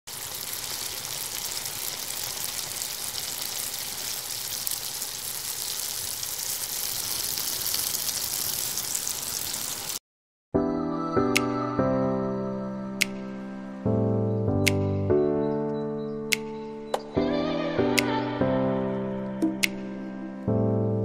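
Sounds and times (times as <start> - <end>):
food frying sizzle: 0.0 - 10.0.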